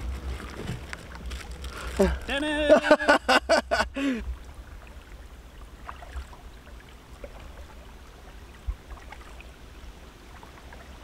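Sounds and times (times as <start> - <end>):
low steady rumble: 0.0 - 11.0
paddle splashing in water: 4.2 - 11.0.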